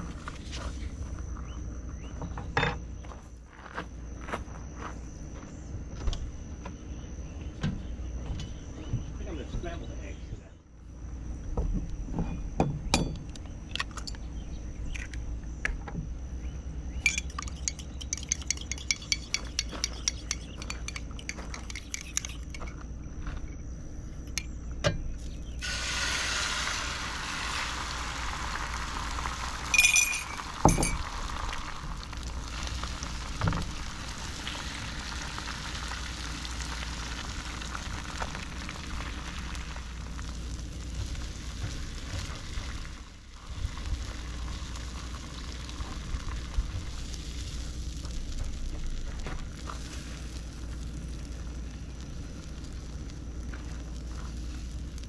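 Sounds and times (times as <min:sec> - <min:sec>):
eggs beaten in ceramic mug: 0:17.1 - 0:22.7
eggs sizzling on griddle: 0:17.1 - 0:22.7, 0:25.6 - 0:55.0.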